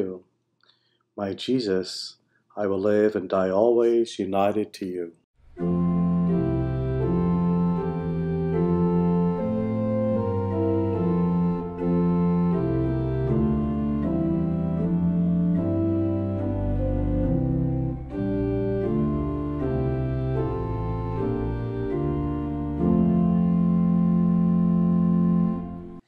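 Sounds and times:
organ playing sustained chords: 0:05.5 - 0:26.0
deep organ bass note: 0:05.6 - 0:26.0.

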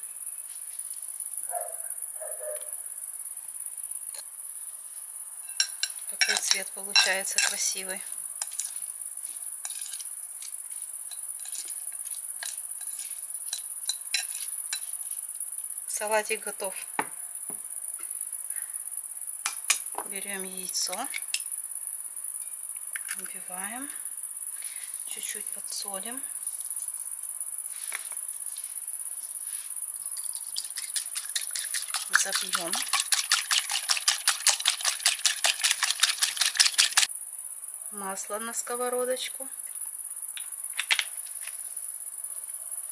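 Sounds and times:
insect chirring: 0:00.0 - 0:42.9
knife stirring salad in glass bowl: 0:05.6 - 0:07.6, 0:08.4 - 0:08.9, 0:09.6 - 0:15.0, 0:30.2 - 0:37.1.

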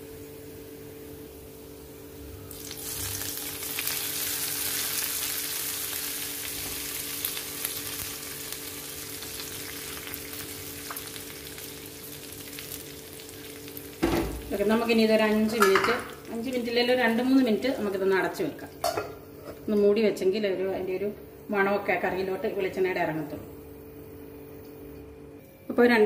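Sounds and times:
oil sizzling in a pan: 0:00.0 - 0:19.4.

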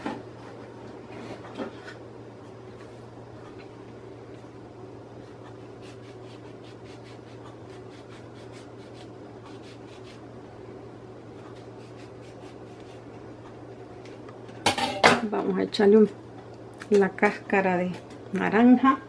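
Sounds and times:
steady low hum: 0:00.0 - 0:19.0
knife scratching orange peel: 0:05.2 - 0:10.3, 0:11.4 - 0:13.1.

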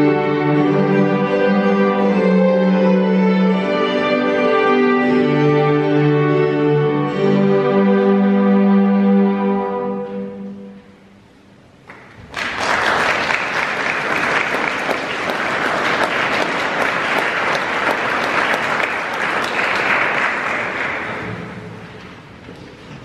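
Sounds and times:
string orchestra chord: 0:00.0 - 0:11.3
audience applause: 0:11.9 - 0:21.6.

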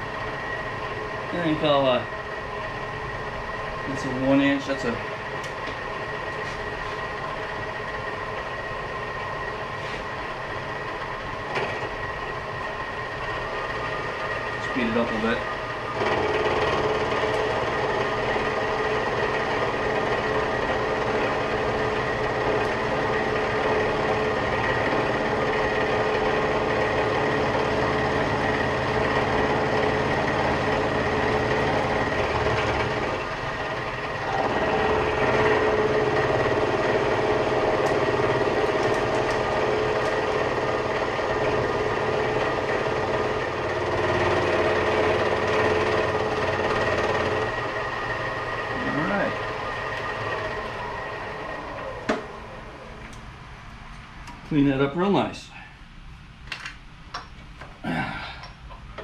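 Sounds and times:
milling machine cutting steel: 0:10.3 - 0:53.1.

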